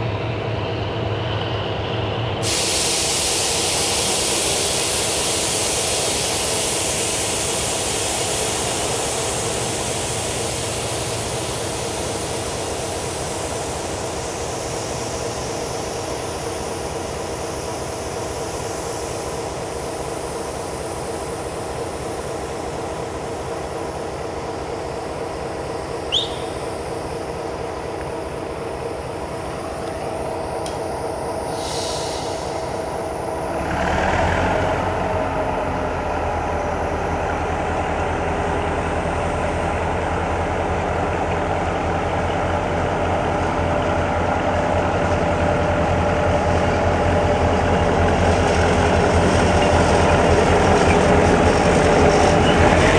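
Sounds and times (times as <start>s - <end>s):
diesel locomotive idling: 0.0s - 52.9s
hiss: 2.4s - 34.0s.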